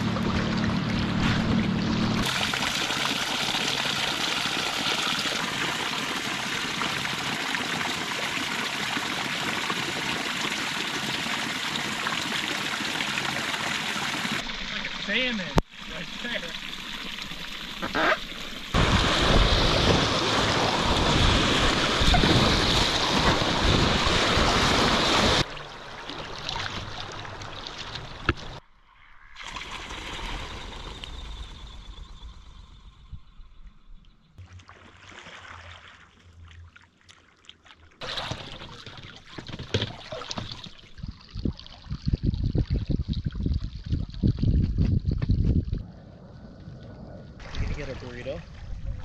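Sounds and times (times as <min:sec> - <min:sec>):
water lapping against raft: 0:17.8 - 0:28.6, 0:34.4 - 0:42.1.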